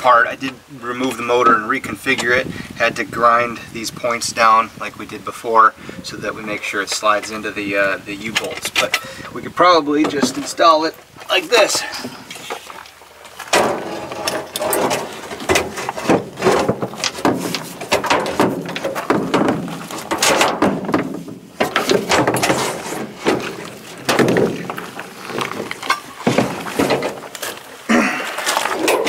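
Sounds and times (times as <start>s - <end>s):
knocks and clunks: 6.9s - 12.7s, 13.3s - 29.0s.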